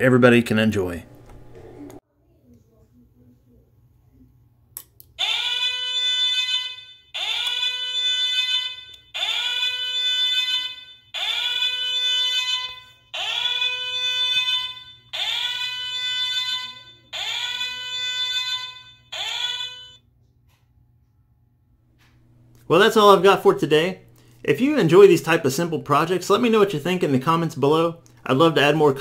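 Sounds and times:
swooping alarm tone from speaker: 5.2s - 20.0s.

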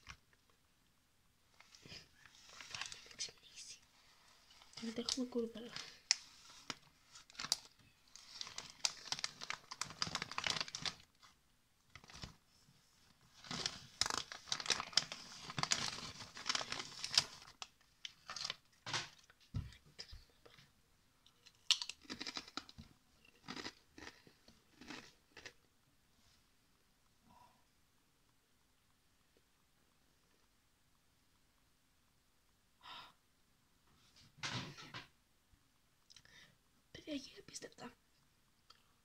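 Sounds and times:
foil bag crinkling: 4.6s - 12.4s, 13.3s - 18.6s
chips crunching: 21.3s - 25.6s.

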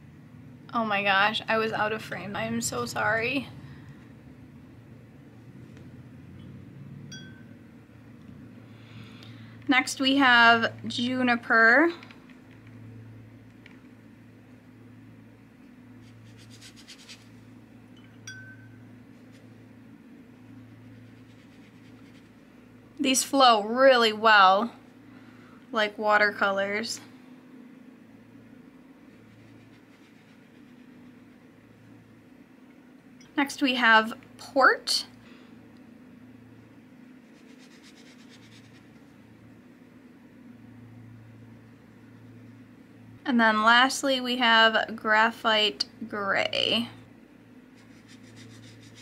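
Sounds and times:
steady low hum: 0.0s - 49.0s
small ringing clink: 7.1s - 7.6s, 17.9s - 18.9s
paintbrush strokes on paper: 16.0s - 17.6s, 19.1s - 19.7s, 20.3s - 22.5s, 29.0s - 31.5s, 37.2s - 39.2s, 47.7s - 49.0s.

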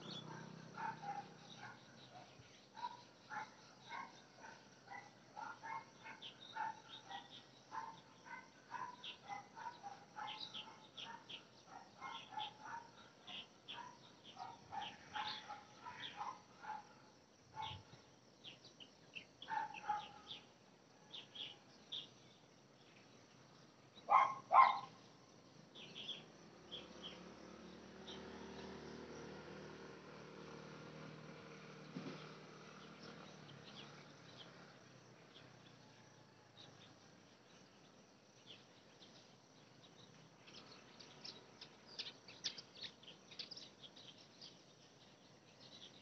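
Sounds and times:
dog barking: 0.2s - 16.9s, 17.6s - 17.9s, 19.5s - 20.4s, 24.1s - 25.0s.

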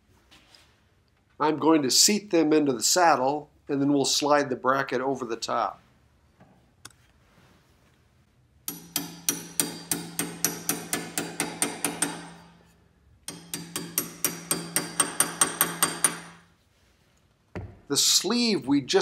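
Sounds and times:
hammer tapping metal pins: 8.7s - 16.4s.

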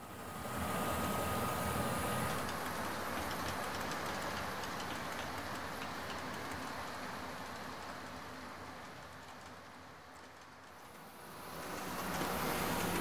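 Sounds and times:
model train rolling rumble: 0.2s - 13.0s
wheels clicking over rail joints: 2.3s - 13.0s.

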